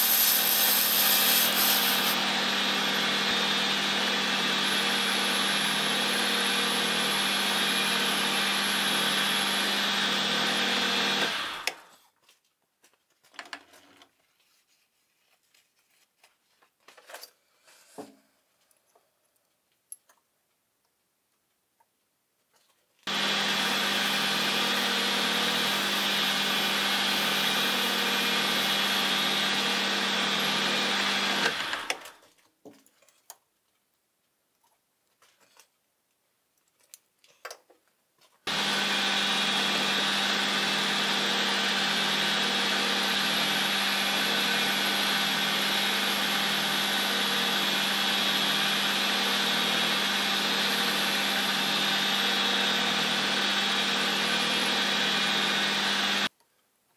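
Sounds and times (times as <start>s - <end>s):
metal lathe humming: 0.0s - 11.8s, 23.1s - 32.0s, 38.5s - 56.3s.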